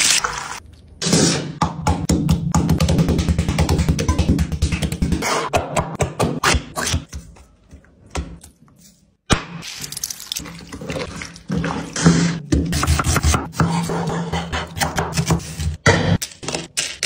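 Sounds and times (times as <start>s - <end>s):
wet splashing and squelching: 9.5s - 12.4s.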